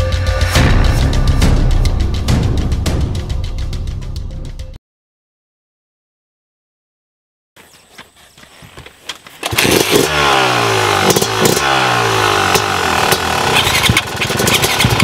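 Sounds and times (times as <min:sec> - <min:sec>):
dirt bike engine revving: 0:09.4 - 0:15.0.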